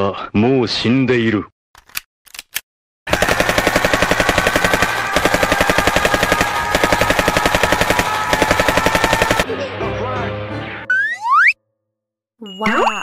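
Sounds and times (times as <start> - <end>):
automatic rifle fire: 3.1 - 9.5.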